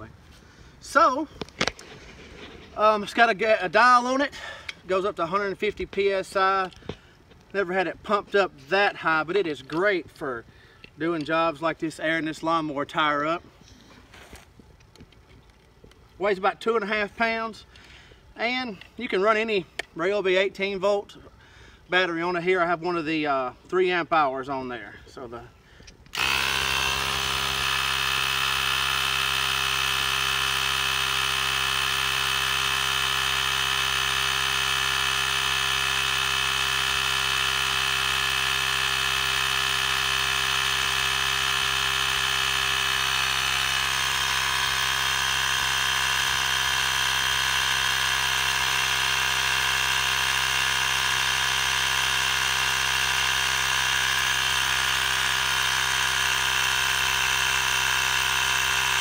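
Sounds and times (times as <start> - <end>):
cordless inflator buzzing: 0.0 - 11.3, 25.6 - 59.0.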